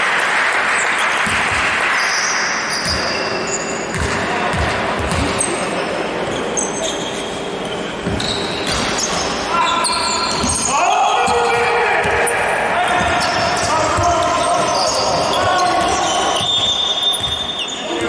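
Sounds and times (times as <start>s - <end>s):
basketball bouncing: 1.2s - 1.7s, 2.8s - 3.2s, 3.9s - 5.4s, 12.9s - 17.5s
short high squeaks: 6.3s - 10.7s, 12.9s - 17.9s.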